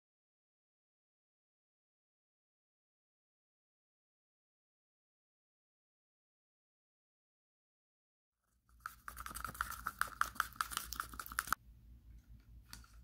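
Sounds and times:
stick scraping a cup: 8.7 - 11.6.

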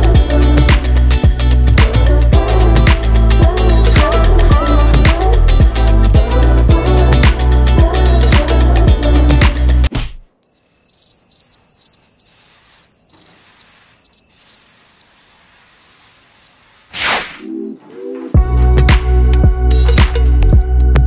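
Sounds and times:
background music: 0.0 - 9.9, 17.4 - 21.0
cricket chirping: 10.4 - 17.0
short whoosh: 17.0 - 17.5.

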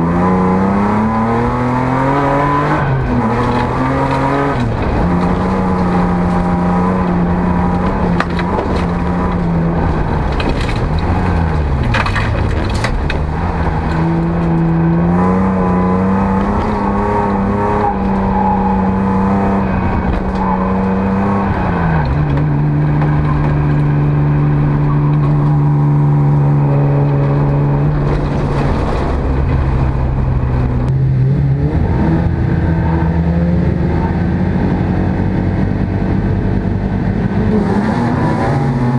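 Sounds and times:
gravel crackling against car: 2.8 - 31.3.

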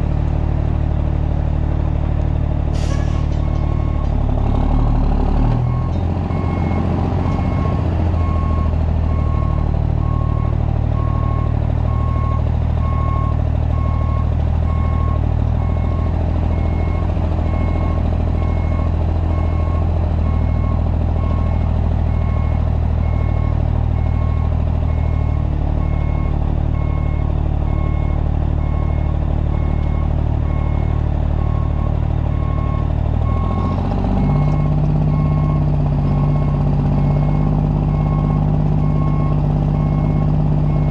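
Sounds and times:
diesel truck engine running: 0.0 - 40.9
reverse alarm beeping: 5.7 - 20.8, 21.4 - 40.9.

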